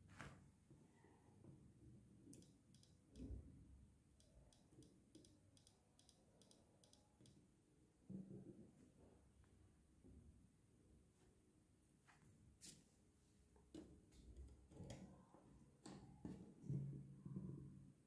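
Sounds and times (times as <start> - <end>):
faint sharp electrical clicks: 2.3 - 3.4, 4.2 - 7.4.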